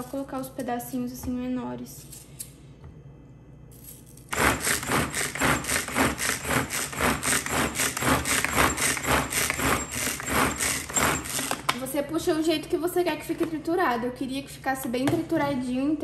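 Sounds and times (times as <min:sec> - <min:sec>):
food chopper blades whirring: 0:04.3 - 0:11.7.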